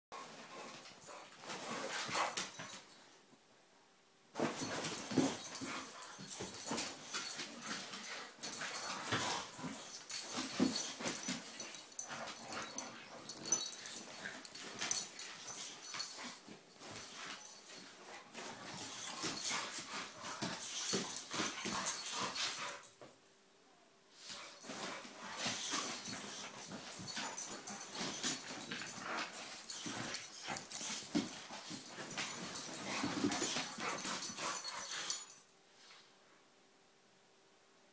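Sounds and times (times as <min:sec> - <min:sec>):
dogs scuffling: 0:04.4 - 0:22.9, 0:24.3 - 0:35.4.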